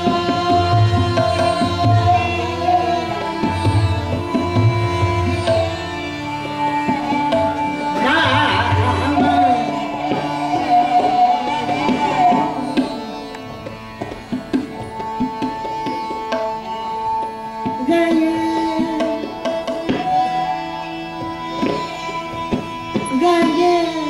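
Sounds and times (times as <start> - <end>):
tabla strokes: 0.0 - 24.0
tanpura drone: 0.0 - 24.0
woman singing: 8.0 - 12.8, 17.8 - 19.4, 23.0 - 24.0.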